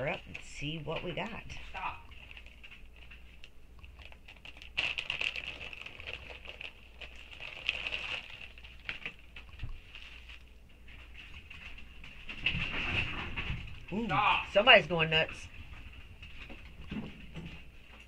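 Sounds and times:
plastic packaging crinkling: 0:00.0 - 0:13.0.

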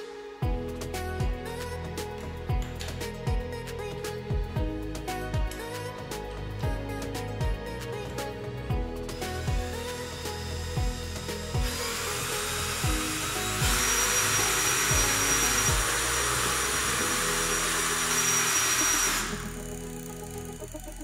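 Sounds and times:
background music with a beat: 0:00.0 - 0:21.0
drill motor whining: 0:09.1 - 0:21.0.

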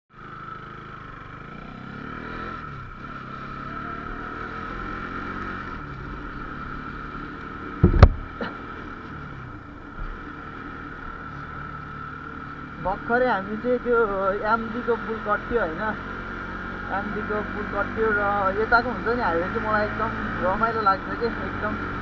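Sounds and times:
motorcycle engine running: 0:00.1 - 0:22.0
loud knock: 0:07.8 - 0:08.3.

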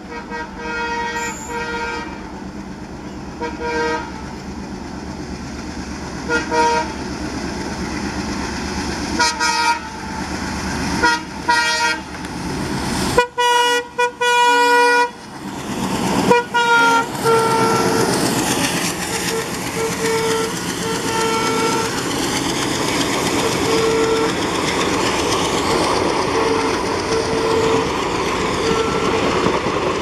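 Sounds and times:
locomotive horn: 0:00.0 - 0:02.3, 0:03.4 - 0:04.2, 0:06.3 - 0:07.0, 0:09.2 - 0:10.1, 0:11.0 - 0:12.2, 0:13.1 - 0:15.2, 0:16.3 - 0:18.3, 0:19.1 - 0:22.1, 0:23.4 - 0:24.5, 0:26.2 - 0:28.0, 0:28.6 - 0:29.5
diesel locomotive engine running: 0:00.0 - 0:30.0.

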